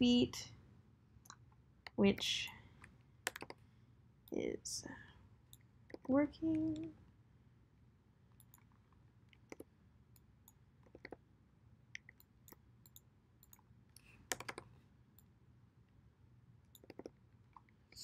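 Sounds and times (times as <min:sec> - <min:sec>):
mouse and keyboard clicks: 0:03.2 - 0:03.6, 0:05.5 - 0:06.9, 0:08.4 - 0:08.7, 0:09.3 - 0:11.2, 0:12.0 - 0:14.7, 0:16.7 - 0:18.0.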